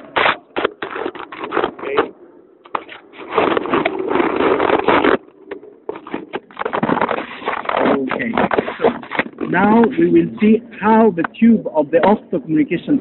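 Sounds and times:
phone handling rubbing and scraping: 0.0s - 10.6s.

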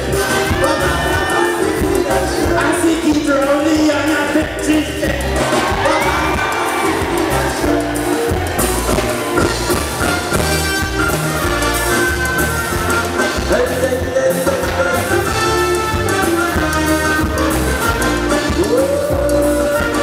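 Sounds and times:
man singing into a microphone: 0.0s - 7.9s, 13.4s - 16.6s, 18.4s - 20.0s
live band with bass guitar: 0.0s - 20.0s.

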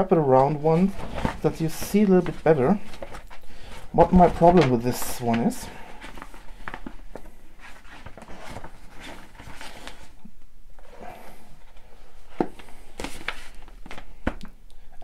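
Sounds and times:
book being handled: 0.4s - 10.2s, 11.6s - 14.4s
paper rustling: 0.4s - 10.2s, 12.4s - 14.4s.

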